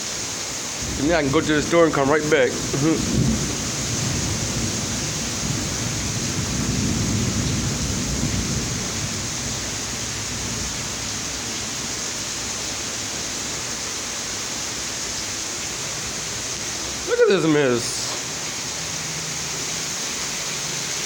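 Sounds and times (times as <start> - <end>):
heavy rain pouring: 0.0 - 21.0
low thunder rumble: 0.8 - 11.0.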